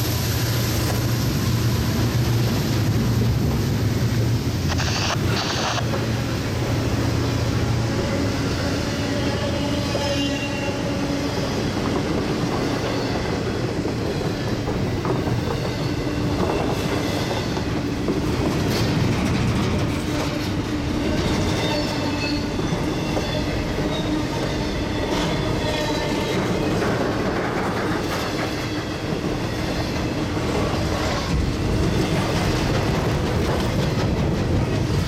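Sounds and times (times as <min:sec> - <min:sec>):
train wheels rumbling on rail: 0:00.0 - 0:35.0
high wheel squeal: 0:21.0 - 0:26.2.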